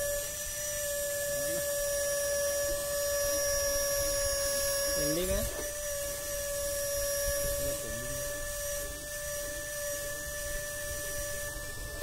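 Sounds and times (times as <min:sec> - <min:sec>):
high-pitched electric motor whine: 0:00.0 - 0:12.0.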